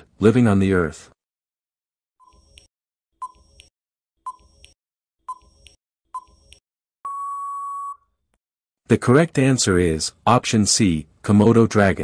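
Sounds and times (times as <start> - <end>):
tick-tock timer clicks: 2.2 - 3.7, 4.3 - 6.6.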